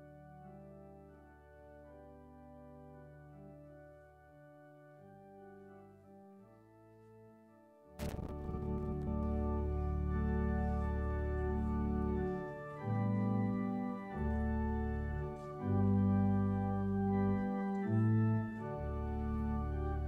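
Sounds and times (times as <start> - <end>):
deep sustained bass notes: 8.0 - 17.4
slow held chords: 8.0 - 20.0.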